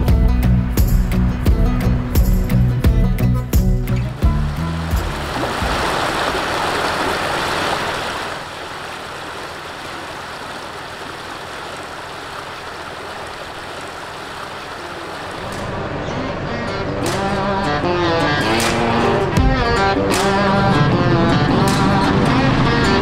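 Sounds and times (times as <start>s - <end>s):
creek water running over rock: 4.2s - 15.7s.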